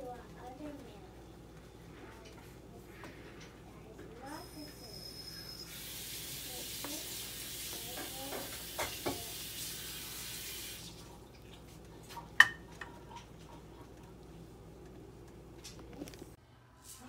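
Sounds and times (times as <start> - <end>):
liquid hissing in a frying pan: 4.4 - 11.2.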